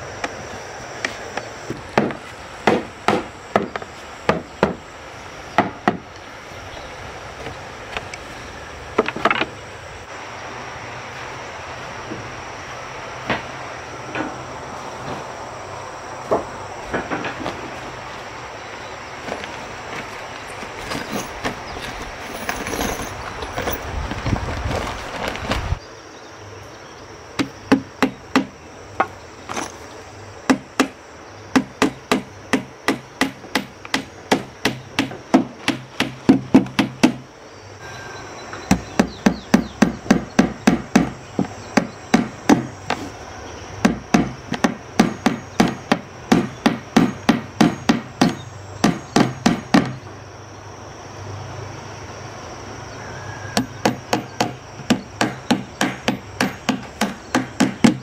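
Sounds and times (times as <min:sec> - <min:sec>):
hammer driving nails into wood: 0:30.5 - 0:37.2, 0:43.8 - 0:50.0, 0:53.8 - 0:58.0.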